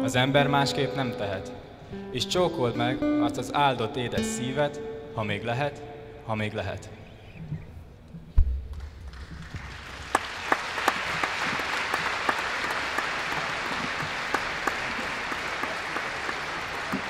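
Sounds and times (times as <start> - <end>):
low thump: 8.4 - 9.4
audience applauding: 8.8 - 17.0.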